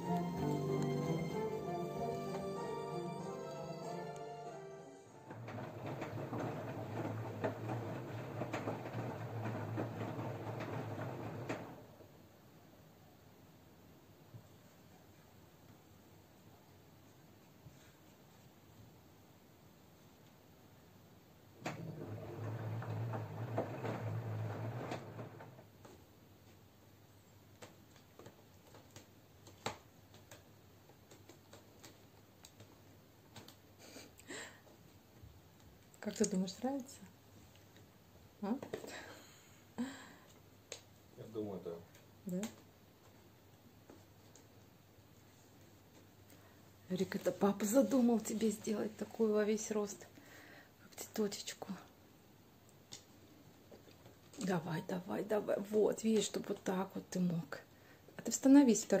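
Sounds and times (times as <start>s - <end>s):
washing machine motor hum: 0.0s - 12.3s, 21.6s - 25.8s
laundry tumbling in drum: 4.4s - 12.4s, 21.6s - 26.1s.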